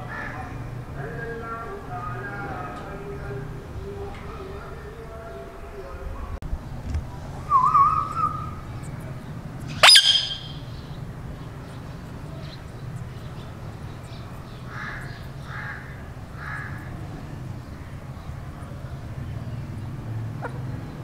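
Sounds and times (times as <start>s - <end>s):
parakeets calling: 7.6s - 21.0s.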